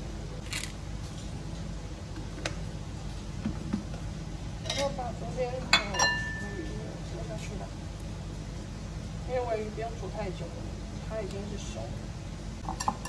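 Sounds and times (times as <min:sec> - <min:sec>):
low background hum: 0:00.0 - 0:13.0
dishware clicking: 0:05.8 - 0:06.6.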